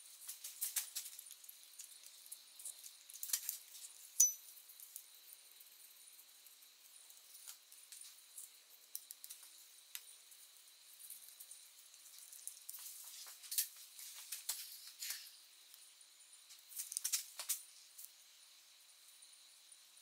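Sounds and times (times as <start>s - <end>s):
sharp ringing metal clink: 4.2s - 4.5s.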